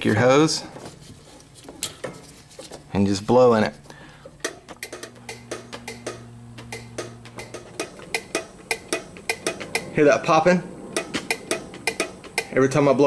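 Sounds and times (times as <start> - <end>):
pressure switch clicking: 4.7 - 9.9.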